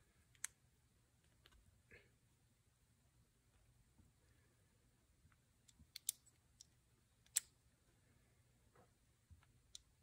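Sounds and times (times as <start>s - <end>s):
small metal parts clicking: 5.6s - 7.5s.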